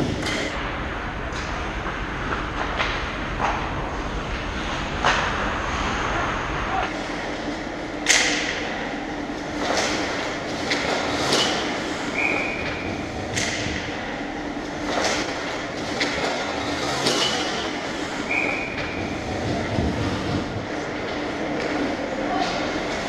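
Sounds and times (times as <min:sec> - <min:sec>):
hockey sticks and puck cracking: 0:08.0 - 0:08.8, 0:09.4 - 0:14.0, 0:14.7 - 0:19.0.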